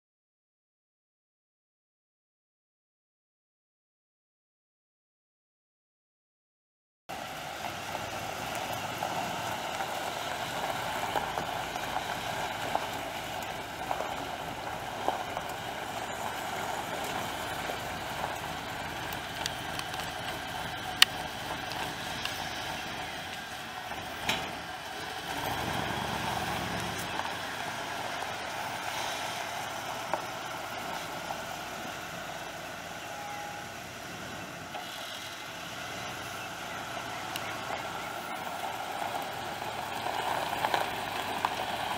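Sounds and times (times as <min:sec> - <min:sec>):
truck engine idling: 0:07.1 - 0:41.9.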